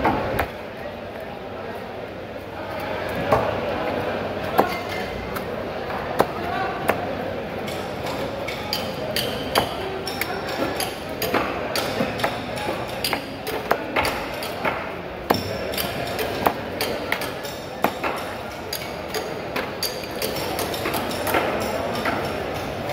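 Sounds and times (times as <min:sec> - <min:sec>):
cleaver chopping on wooden block: 0:06.2 - 0:07.1, 0:10.6 - 0:18.3.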